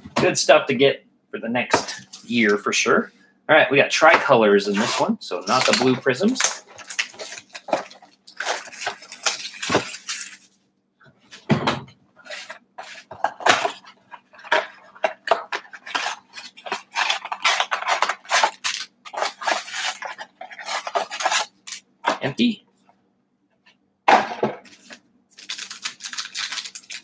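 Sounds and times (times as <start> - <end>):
plastic wrap crinkling: 4.7 - 10.6, 12.3 - 21.8, 24.6 - 27.0.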